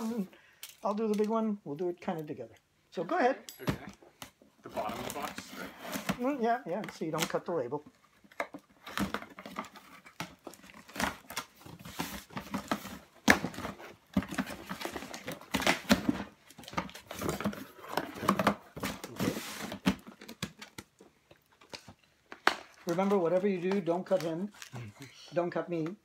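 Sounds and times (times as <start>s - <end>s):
cardboard scraping and tearing: 16.8s - 20.0s.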